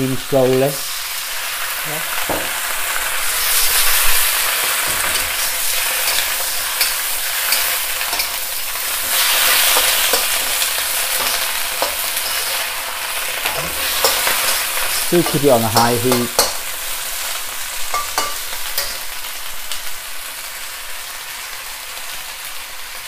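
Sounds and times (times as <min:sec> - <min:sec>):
greens sizzling in a wok: 0:00.0 - 0:23.0
metal spatula scraping a wok: 0:03.3 - 0:19.2.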